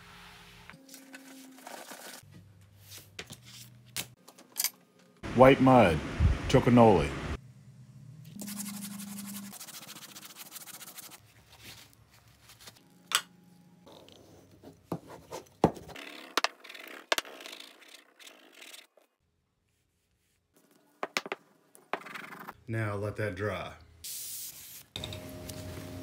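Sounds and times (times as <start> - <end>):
brush scrubbing leather: 8.4 - 11.9.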